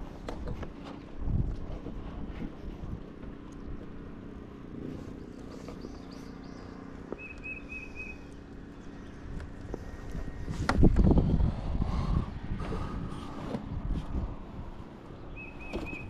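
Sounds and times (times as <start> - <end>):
wind rumble: 0.0 - 16.0
small bird chirping: 5.1 - 8.4, 15.2 - 16.0.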